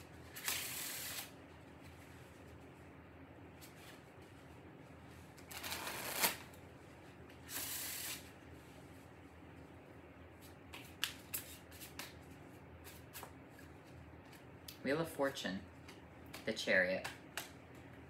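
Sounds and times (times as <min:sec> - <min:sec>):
cards being shuffled: 0:05.5 - 0:06.4, 0:10.4 - 0:14.5.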